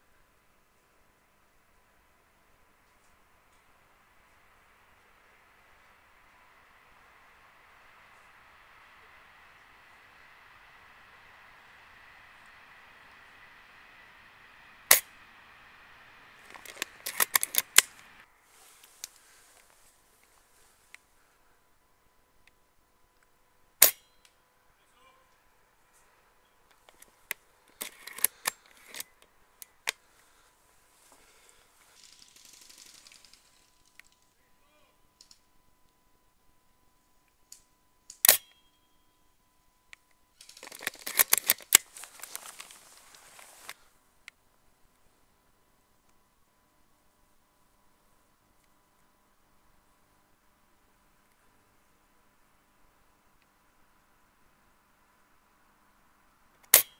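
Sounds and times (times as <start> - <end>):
faint steady hiss: 0.0 - 56.9
airsoft rifle firing crack: 14.8 - 15.5
rifle handling clicks and rattles: 16.4 - 18.2, 26.7 - 30.0, 40.4 - 43.8.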